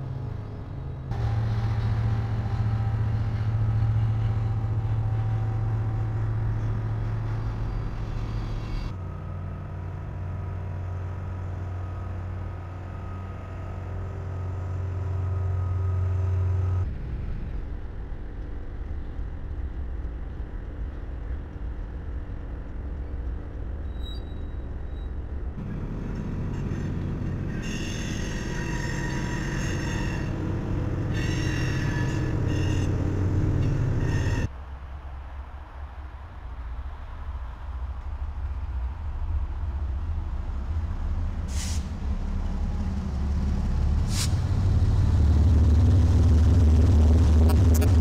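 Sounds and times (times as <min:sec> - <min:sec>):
diesel locomotives droning: 0:00.0 - 0:48.0.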